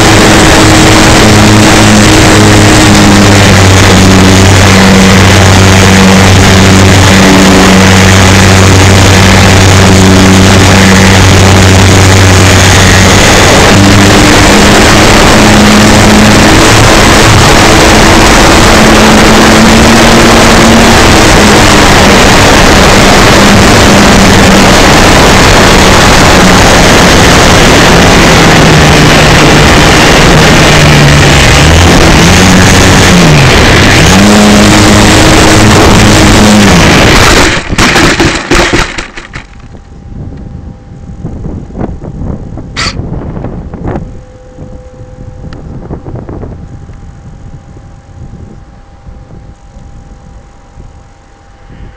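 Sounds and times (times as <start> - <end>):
electric motor and propeller hum: 0.0 - 51.9
wind rushing over microphone: 0.0 - 51.9
model plane crashing onto sand: 37.2 - 39.6.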